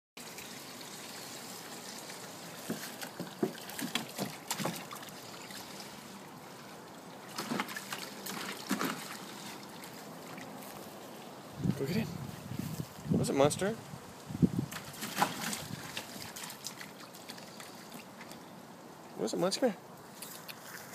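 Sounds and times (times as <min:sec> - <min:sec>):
garden hose trickling: 0:00.2 - 0:20.9
dog splashing in water: 0:02.3 - 0:06.0, 0:07.2 - 0:10.8, 0:14.7 - 0:18.4.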